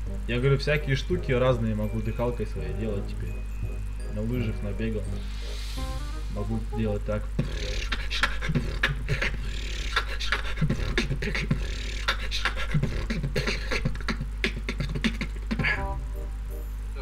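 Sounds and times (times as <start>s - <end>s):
short melody: 0.0s - 7.4s, 15.8s - 16.8s
beatboxing: 7.4s - 15.9s.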